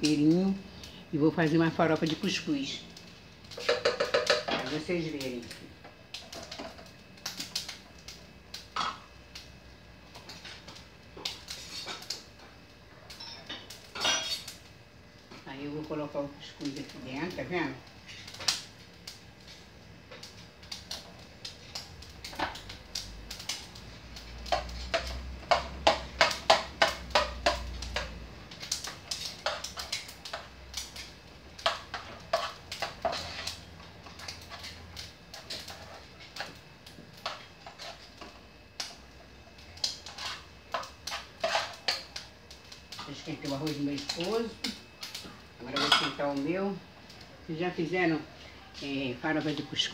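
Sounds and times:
spoon scraping cooking pot: 31.6 - 33.6, 37.2 - 38.1, 40.0 - 42.1.

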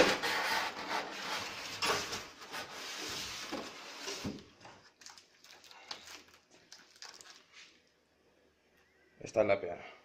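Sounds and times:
foam scraping against cardboard box: 0.0 - 4.3.

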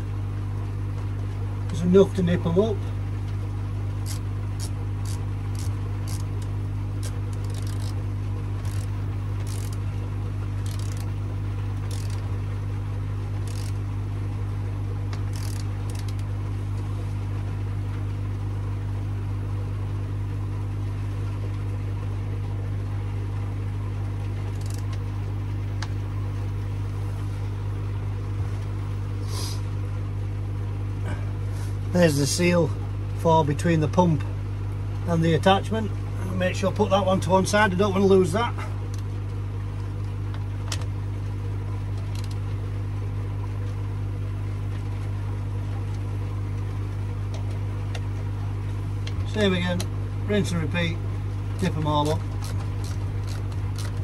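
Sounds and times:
low electrical hum: 0.0 - 54.0
socket wrench clicking: 4.0 - 6.3, 7.0 - 8.0, 8.6 - 9.8, 10.6 - 11.1, 11.9 - 12.2, 15.3 - 16.2, 24.6 - 24.9.

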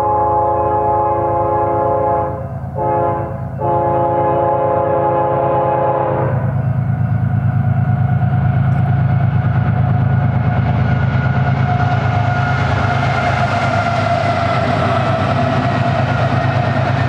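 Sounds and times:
train air horn blasts: 0.0 - 6.6
diesel locomotives rumbling: 0.0 - 17.0.

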